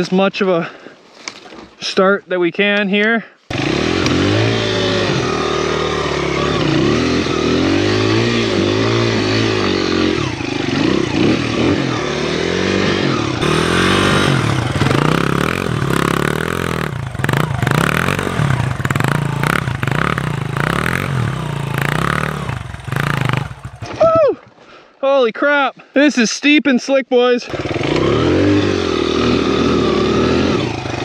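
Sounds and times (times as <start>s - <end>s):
dirt bike engine revving: 3.5s - 24.0s, 27.5s - 31.0s.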